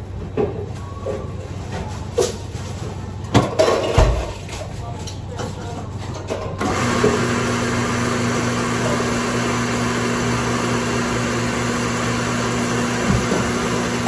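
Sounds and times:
electric appliance whirring: 0:06.6 - 0:14.0.

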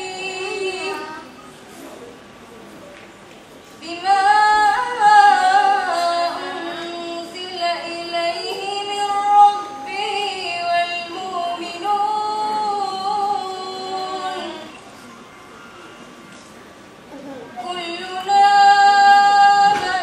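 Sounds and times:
girl reciting melodically: 0:00.0 - 0:01.5, 0:03.8 - 0:14.8, 0:17.5 - 0:20.0.

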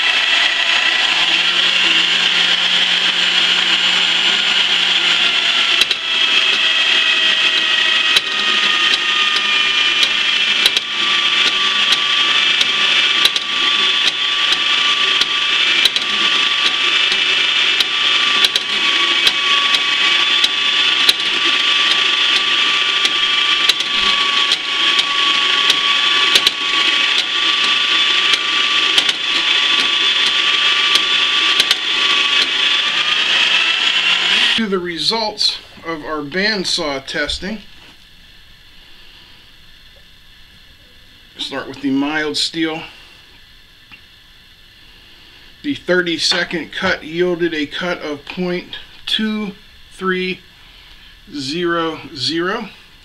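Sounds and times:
bandsaw cutting metal: 0:00.0 - 0:37.3.

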